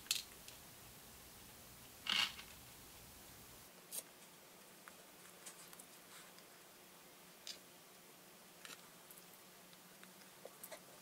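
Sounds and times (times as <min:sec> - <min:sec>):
beads rattling: 0:02.0 - 0:02.6.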